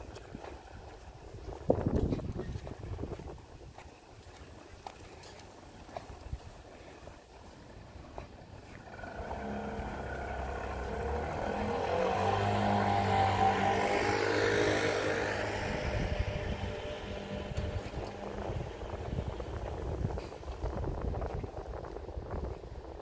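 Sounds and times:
motor vehicle driving past: 8.7s - 20.4s.

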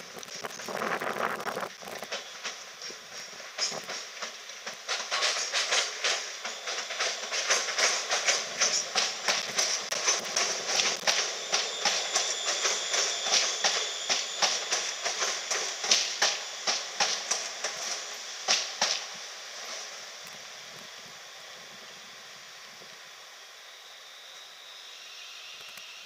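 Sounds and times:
train wheels clicking over rail joints: 0.0s - 20.8s
faint high whine: 5.4s - 26.0s.

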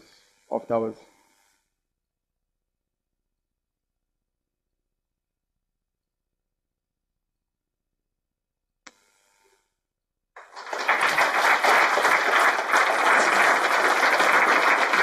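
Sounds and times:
audience applauding: 10.4s - 15.0s.

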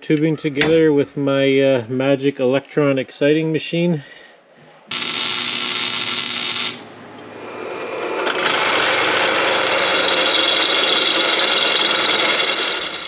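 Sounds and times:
welder arc buzzing and crackling: 4.9s - 6.9s
drill press drilling into steel: 8.2s - 13.0s.

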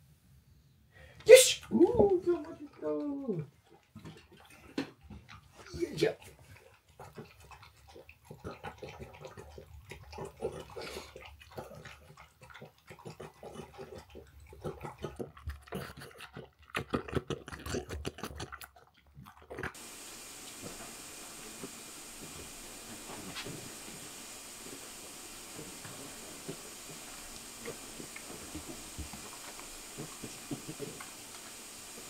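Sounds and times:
dog lapping and chewing food: 1.7s - 32.0s
steady hiss: 19.8s - 32.0s.

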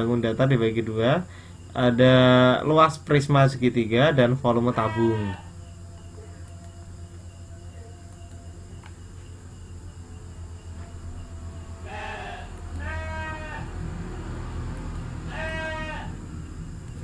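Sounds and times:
steady low hum: 0.0s - 17.0s
quavering bleat-like calls: 4.6s - 5.5s, 11.7s - 13.8s, 15.2s - 16.3s.

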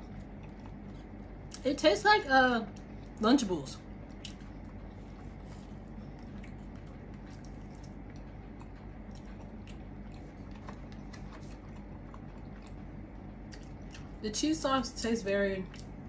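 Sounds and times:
person chewing food: 0.0s - 1.6s, 3.9s - 14.2s
steady low hum: 0.0s - 16.0s.

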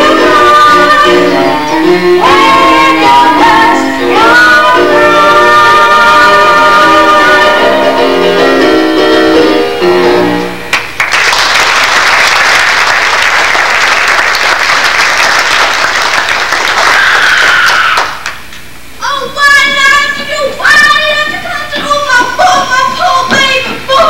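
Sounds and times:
musical song instrumental accompaniment: 0.0s - 11.0s
audience applauding: 10.7s - 18.4s.

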